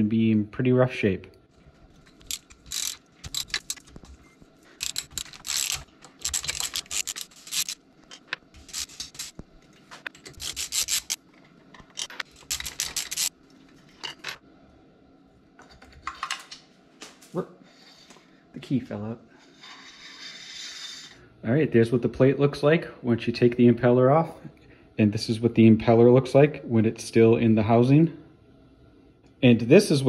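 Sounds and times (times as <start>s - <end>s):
socket ratchet clicking: 2.2s - 4.0s, 4.8s - 7.8s, 10.1s - 11.2s.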